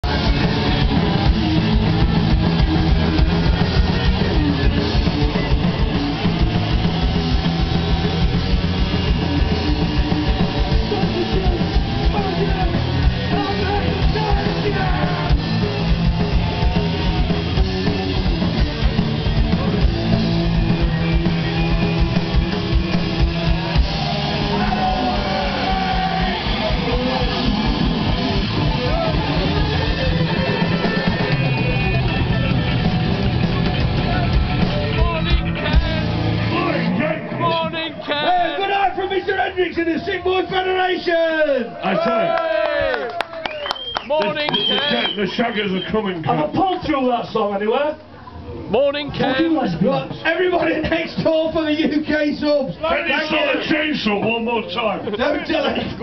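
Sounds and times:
electric guitars: 0.0s - 38.4s
bass guitar: 0.0s - 38.6s
drums: 0.0s - 56.0s.

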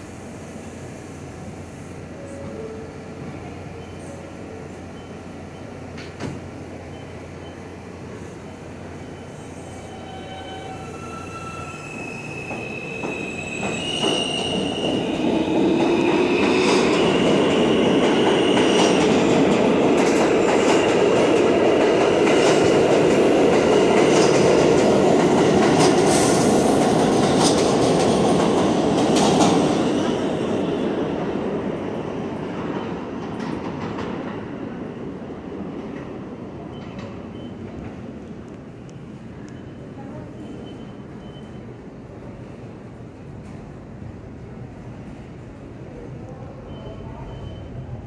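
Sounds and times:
subway train accelerating: 0.0s - 48.0s
high wheel squeal: 9.0s - 15.6s.

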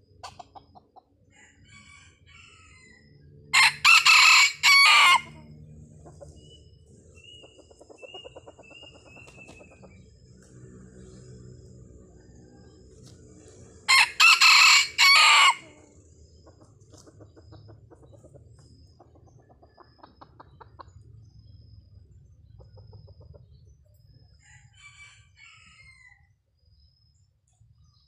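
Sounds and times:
rooster crowing: 1.3s - 5.6s, 13.9s - 15.9s, 24.4s - 26.3s.

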